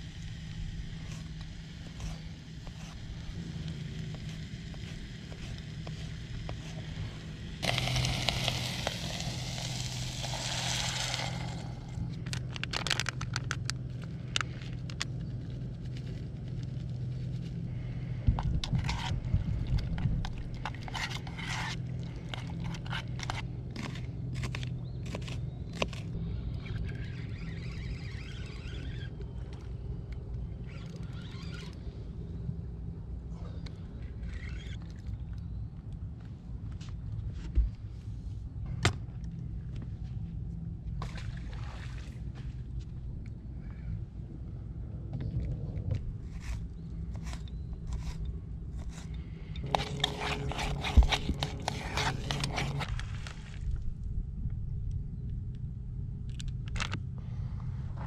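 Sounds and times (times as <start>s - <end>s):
loud hiss: 7.6s - 12.0s
metal utensil scraping cooking pot: 48.8s - 52.9s.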